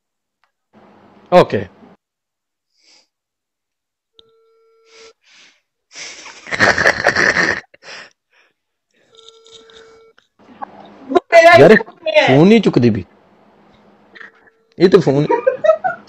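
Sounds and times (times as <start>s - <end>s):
phone ringback beep: 4.2s - 5.1s, 9.1s - 10.2s
man laughing loudly: 6.0s - 7.9s, 15.2s - 16.0s.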